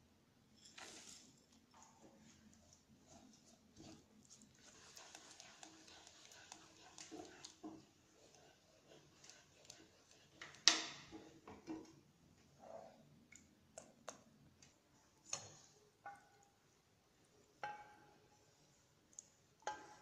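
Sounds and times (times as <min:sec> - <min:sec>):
spatula knocking saucepan: 0:17.6 - 0:18.2, 0:19.6 - 0:20.0.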